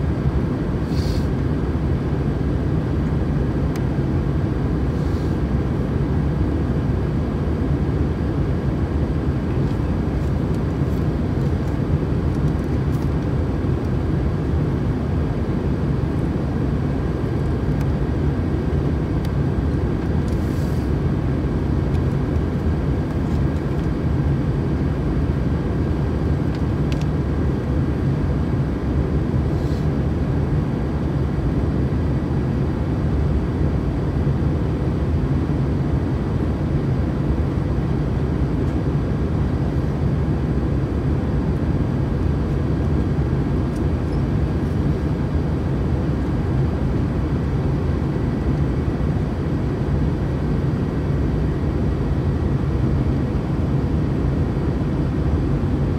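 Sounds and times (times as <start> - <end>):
airliner cabin drone: 0.0 - 55.9
faint steady whine: 0.0 - 55.9.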